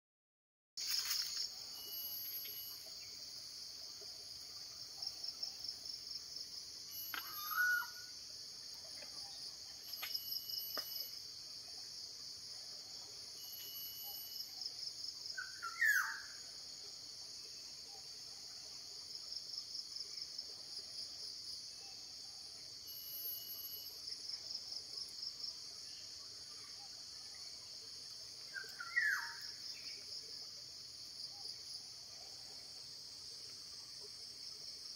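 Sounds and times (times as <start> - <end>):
insect chorus pulsing trills: 0.8 - 34.9
bird short call: 7.0 - 8.0.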